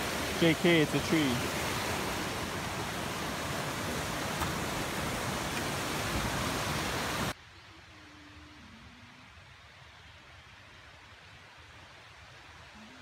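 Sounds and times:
stream rushing over rocks: 0.0 - 7.4.

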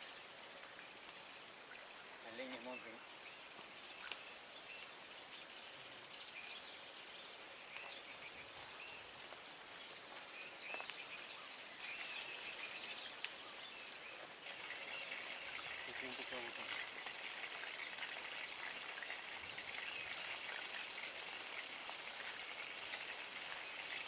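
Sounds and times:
faint bird chirps: 0.0 - 17.1
insect calls: 0.0 - 24.0.

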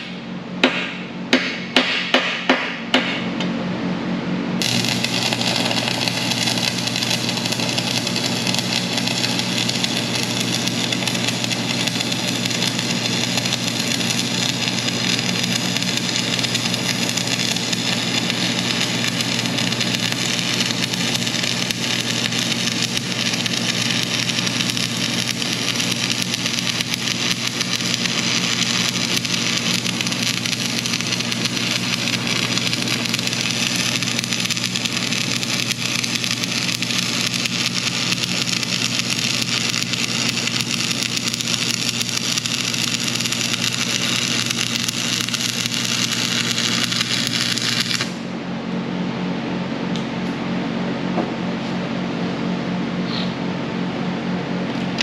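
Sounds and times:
low hum: 2.8 - 55.0
welding arc crackling: 4.6 - 48.3.

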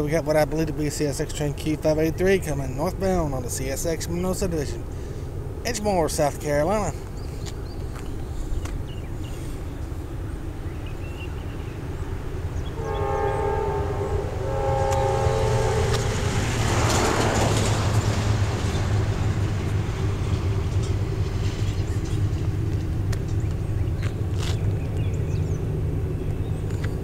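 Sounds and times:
train low rumble: 0.0 - 27.0
locomotive air horn chord: 12.7 - 17.9.

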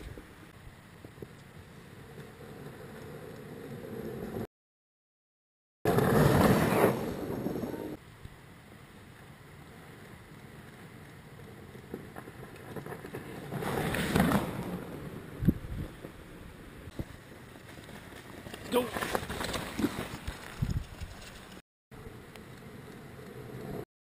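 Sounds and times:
bike tyres rushing on snow: 5.9 - 23.8.

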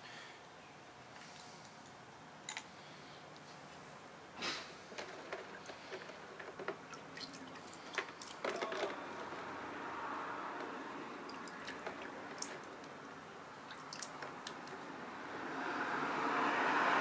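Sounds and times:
faint rushing noise: 8.9 - 17.0.

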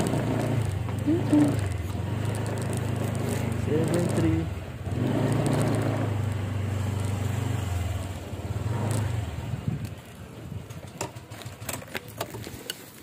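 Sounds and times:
small motorcycle engine running: 0.0 - 12.5.

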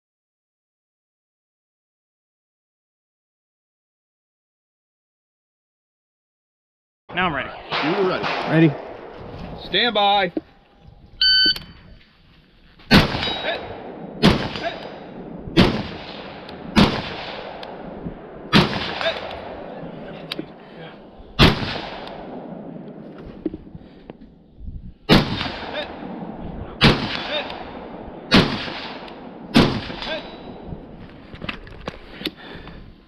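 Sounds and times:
rifle shots: 7.4 - 9.9, 12.9 - 23.7, 25.1 - 31.0
distant steel targets clanging: 12.9 - 23.1, 25.4 - 30.8.

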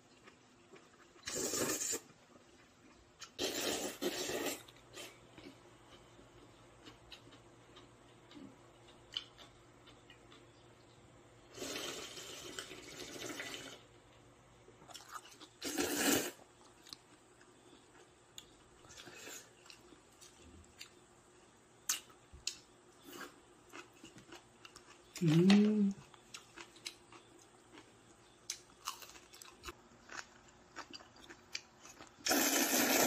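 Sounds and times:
slurping noodle soup: 1.2 - 2.1, 3.2 - 5.2, 11.5 - 13.8, 15.6 - 16.4, 32.2 - 33.0.

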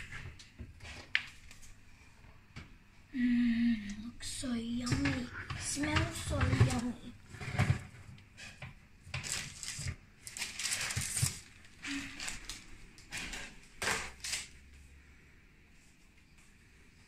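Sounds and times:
tray scraping on oven rack: 4.8 - 8.6.

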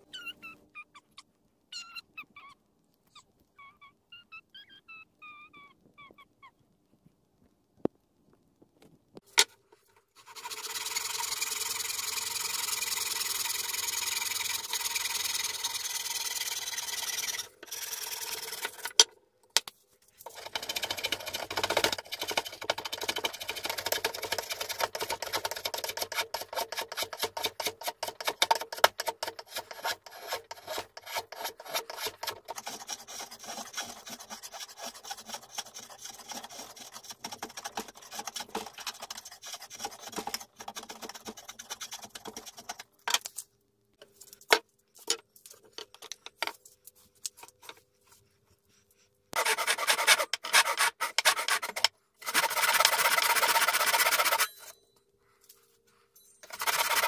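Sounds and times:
handsaw cutting wood: 20.3 - 42.7, 49.4 - 54.7, 56.4 - 57.0
hand rasp shaping wooden handle: 20.3 - 42.8, 49.4 - 54.7, 56.4 - 57.0.

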